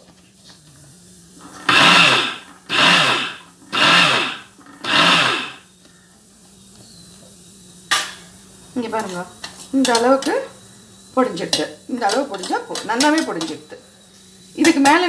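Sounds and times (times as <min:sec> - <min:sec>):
mixer grinder motor whirring: 0:00.6 - 0:05.7.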